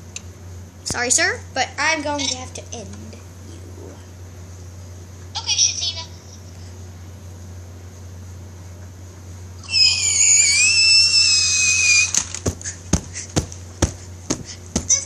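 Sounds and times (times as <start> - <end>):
boy screaming: 9.6 - 12.4
sharp knocks: 12.4 - 15.0.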